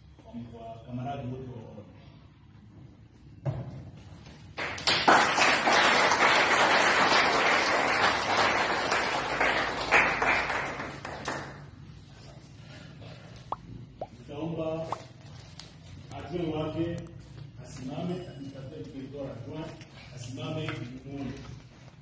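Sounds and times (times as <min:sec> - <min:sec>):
audience applauding: 0:04.6 - 0:11.5.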